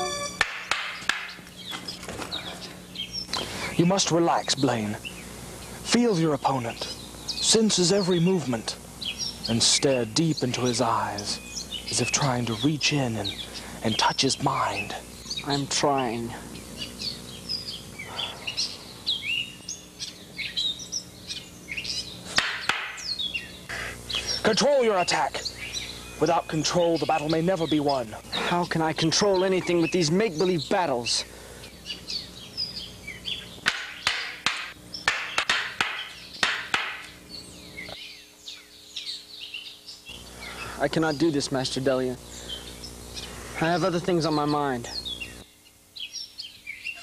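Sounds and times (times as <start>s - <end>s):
faint steady hum: 0.0s - 47.0s
songbirds chirping and whistling: 0.0s - 47.0s
practice swords striking together: 22.4s - 23.0s, 33.6s - 37.0s.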